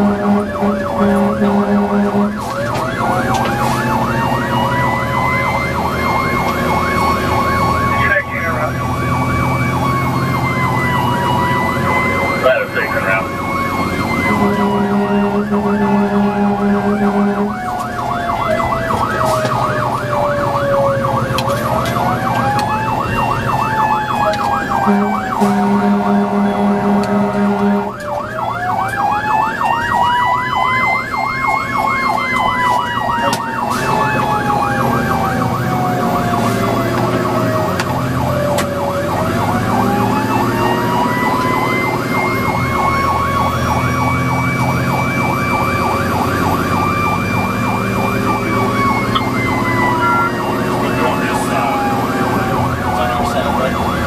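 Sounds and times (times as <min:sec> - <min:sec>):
low air horn blasts: 0:00.0 - 0:02.6, 0:14.2 - 0:17.6, 0:24.8 - 0:28.0
electronic siren yelp: 0:00.0 - 0:54.0
fire engine siren wail: 0:00.0 - 0:54.0.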